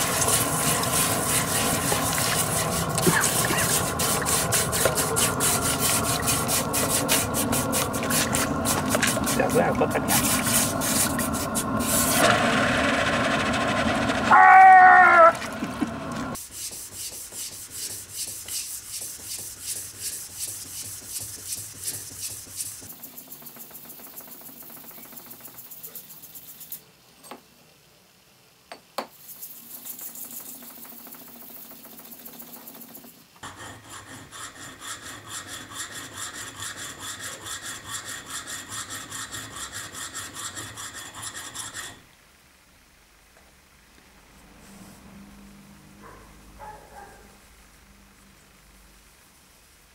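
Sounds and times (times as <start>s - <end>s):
blade scraping on abrasive paper: 0.0s - 12.4s, 33.4s - 42.0s.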